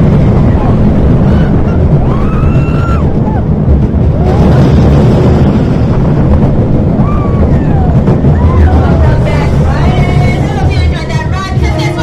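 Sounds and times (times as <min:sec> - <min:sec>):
roller coaster rumbling on track: 0:00.0 - 0:12.0
wind buffeting microphone: 0:00.0 - 0:12.0.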